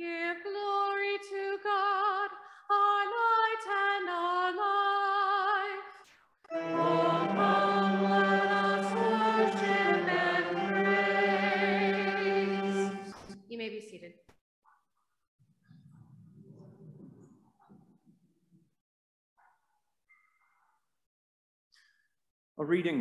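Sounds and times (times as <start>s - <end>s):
solo cantor singing: 6.5s - 13.1s
group of voices singing: 6.5s - 13.4s.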